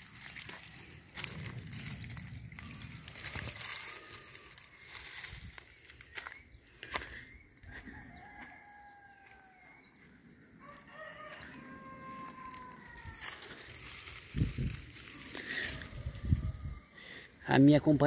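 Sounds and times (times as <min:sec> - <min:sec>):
rooster crowing: 0:07.7 - 0:13.9, 0:15.1 - 0:17.1.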